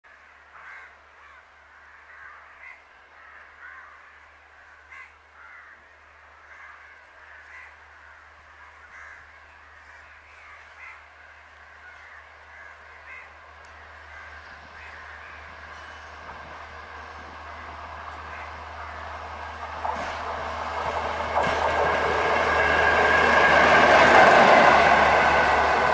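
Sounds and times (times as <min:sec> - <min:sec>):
crows cawing: 0:00.1 - 0:15.9, 0:17.4 - 0:19.2
train rushing: 0:11.0 - 0:25.9.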